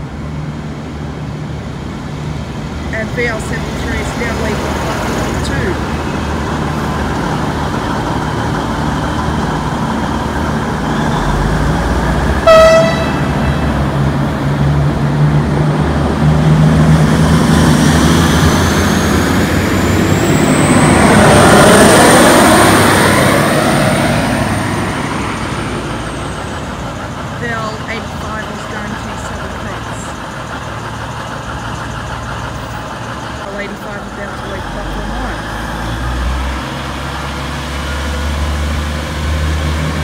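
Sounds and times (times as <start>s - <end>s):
diesel train engines: 0.0s - 40.0s
high whine of arriving train: 0.0s - 40.0s
train horn toot: 12.4s - 13.7s.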